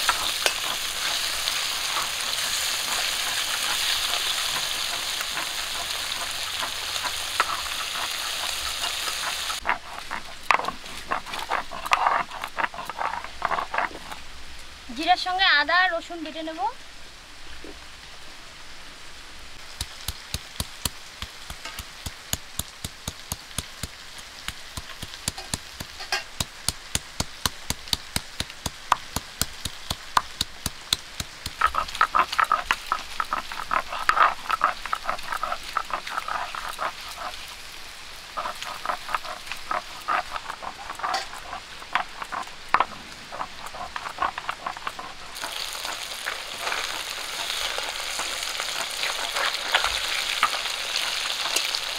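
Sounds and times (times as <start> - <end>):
stone rasping scrape: 0.0 - 14.2, 30.9 - 37.5, 38.4 - 51.9
fish sizzling in oil: 0.0 - 16.8, 19.5 - 51.9
stone roller knocking on slab: 20.3 - 37.3, 38.4 - 46.0.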